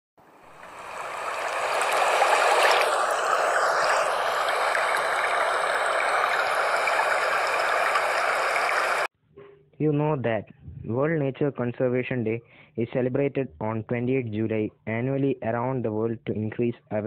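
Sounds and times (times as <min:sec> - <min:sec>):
water rushing: 0:00.2 - 0:09.1.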